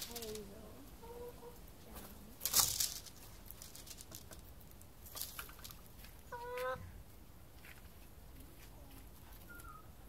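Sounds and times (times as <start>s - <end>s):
hen wings flapping and rustling: 2.0s - 6.2s.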